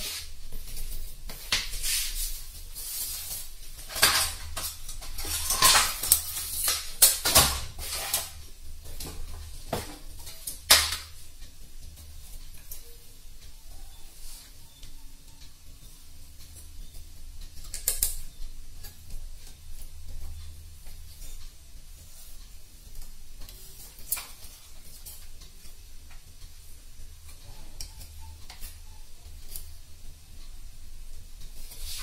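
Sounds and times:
metal tools clinking and clattering: 3.9 - 6.4.

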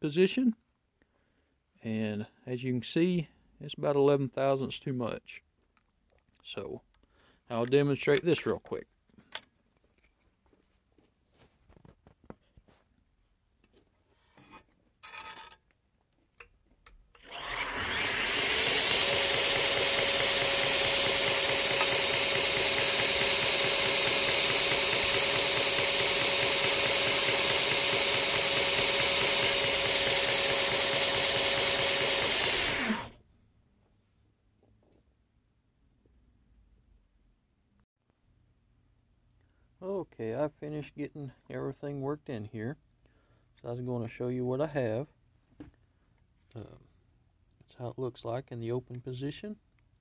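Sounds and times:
belt grinder grinding blade: 17.2 - 33.2.

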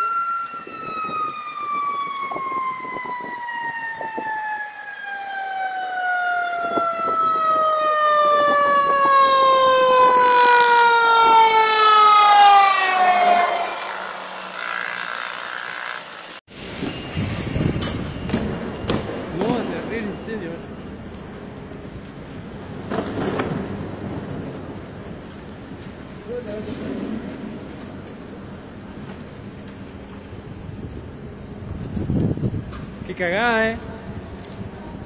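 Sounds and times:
fire truck siren wailing: 0.0 - 15.5.

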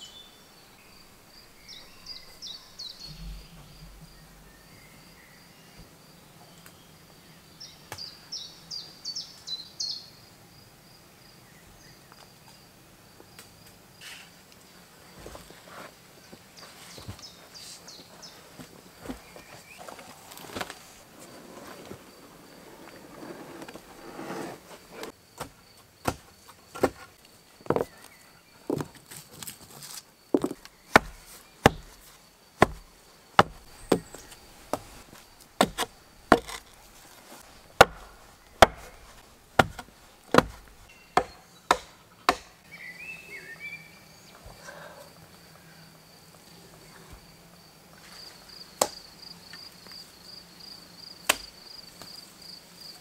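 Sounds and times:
faint insect drone: 0.0 - 53.0
hand tool striking wood: 25.0 - 27.1, 30.4 - 42.6.

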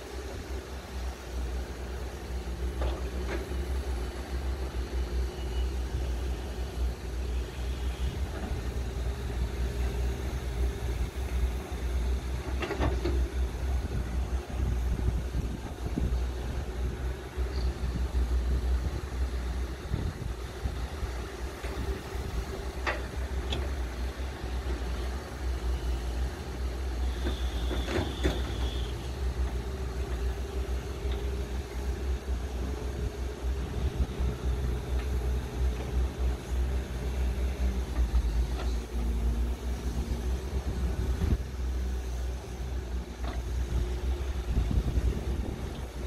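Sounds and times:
excavator diesel engines rumbling: 0.0 - 46.0
high squeal: 5.3 - 5.8.

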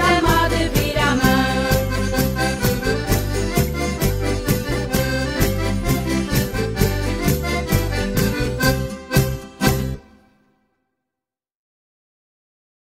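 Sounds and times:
folk music led by accordion: 0.0 - 10.3.

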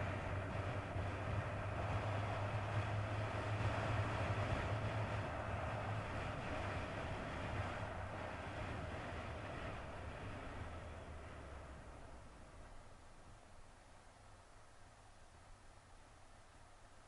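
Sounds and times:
motorcycle engine cruising: 0.0 - 11.0
wind and road noise: 0.0 - 17.0.

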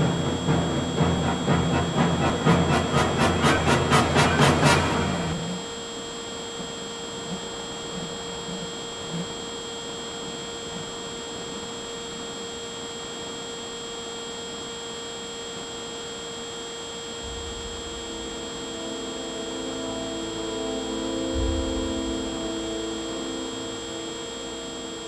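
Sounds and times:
low rumble: 0.0 - 5.6, 17.2 - 23.9
electric motor whine: 15.9 - 25.0.

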